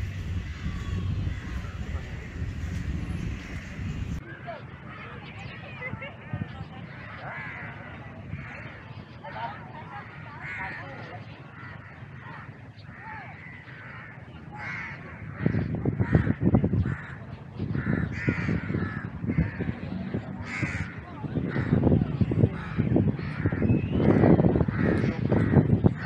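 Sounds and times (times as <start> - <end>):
loud irregular low rumble: 0.0 - 4.2, 11.5 - 26.0
crows cawing: 0.1 - 3.7, 11.5 - 21.9.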